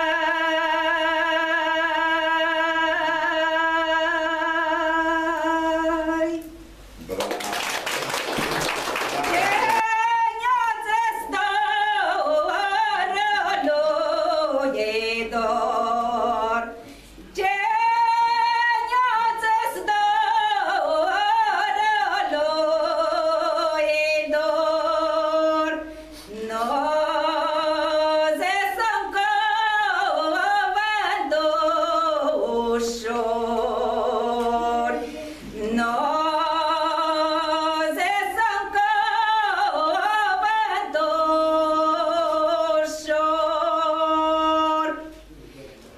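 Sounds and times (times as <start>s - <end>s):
woman singing unaccompanied: 0.0s - 6.7s, 9.3s - 45.1s.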